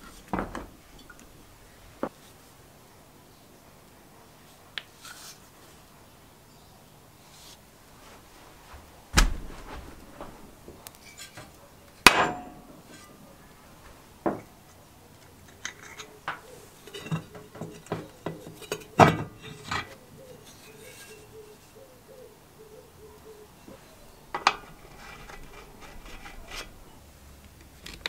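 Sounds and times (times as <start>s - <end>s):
hammer striking metal shaft: 12.1s - 12.7s.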